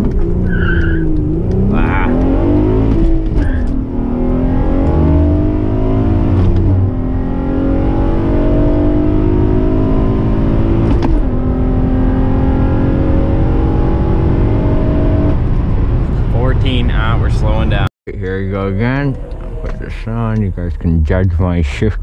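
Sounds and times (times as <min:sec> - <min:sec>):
gear shift click: 0:00.0 - 0:03.8, 0:06.3 - 0:06.8
car engine accelerating: 0:00.0 - 0:22.0.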